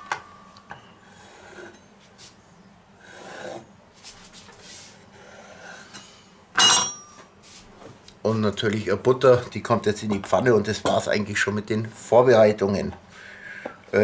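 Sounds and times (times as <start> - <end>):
knife scraping wooden board: 3.0 - 5.9.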